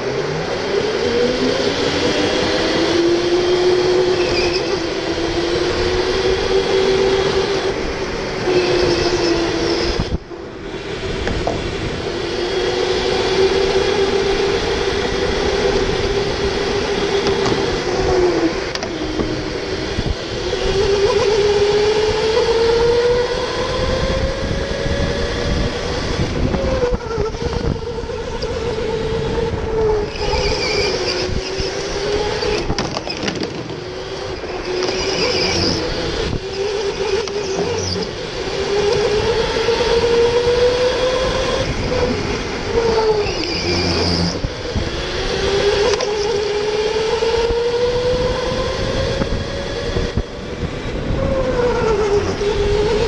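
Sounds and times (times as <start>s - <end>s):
electric go-kart motor whining: 0.0s - 53.0s
short high-pitched squeals: 30.1s - 31.8s.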